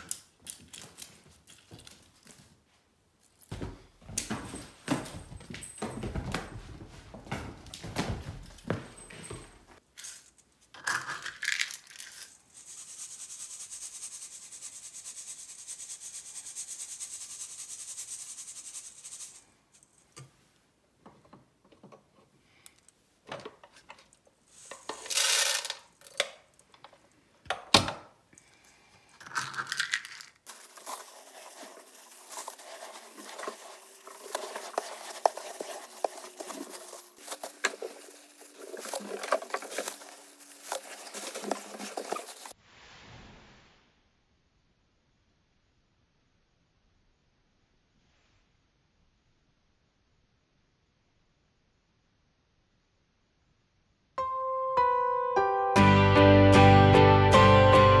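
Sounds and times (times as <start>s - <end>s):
kibble rattling in wire sieve: 10.0s - 19.5s, 24.6s - 26.2s, 29.2s - 42.6s.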